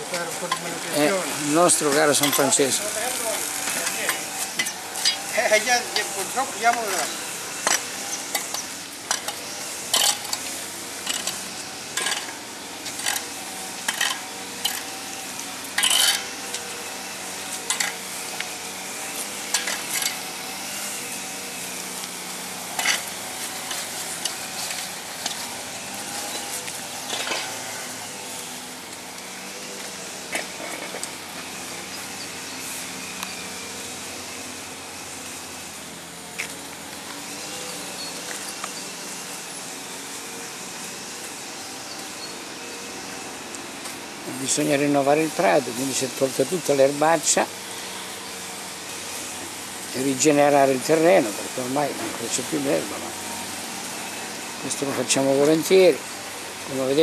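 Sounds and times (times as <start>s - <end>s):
metal rake scraping soil: 0.0s - 43.2s, 43.8s - 57.0s.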